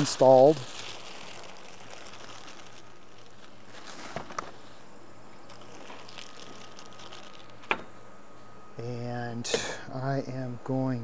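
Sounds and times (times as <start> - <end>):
low outdoor background hiss: 0.0 - 11.0.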